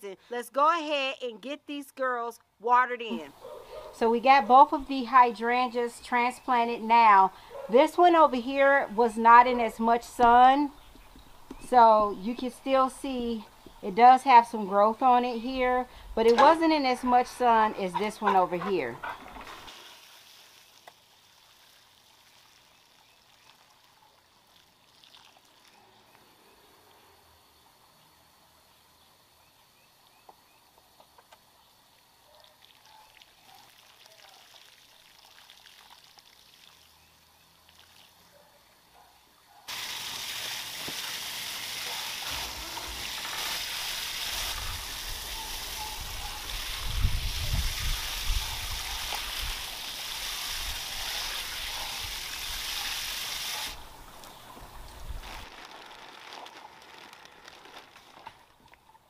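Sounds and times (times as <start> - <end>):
hose spraying water: 15.0 - 25.8, 39.7 - 56.0.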